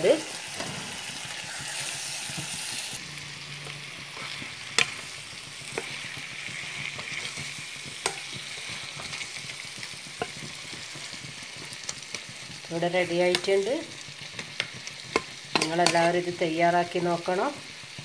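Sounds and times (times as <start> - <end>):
curry sizzling in a pan: 0.0 - 18.0
steel spoon clicking against pan: 8.0 - 8.4, 14.4 - 16.0.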